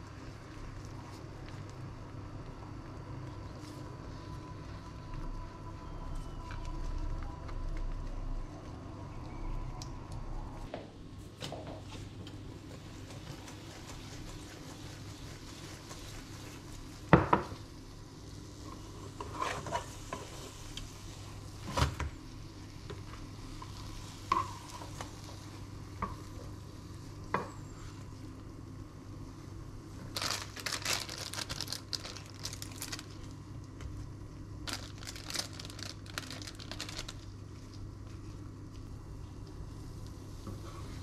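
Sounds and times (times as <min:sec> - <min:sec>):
steady low hum: 0:00.0 - 0:41.0
plastic packaging crinkling: 0:30.1 - 0:33.3, 0:34.6 - 0:37.8.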